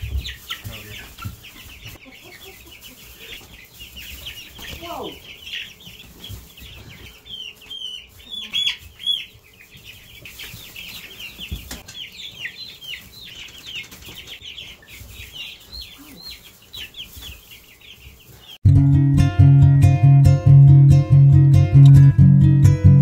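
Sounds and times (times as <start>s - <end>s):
chicks peeping: 0.0s - 18.7s.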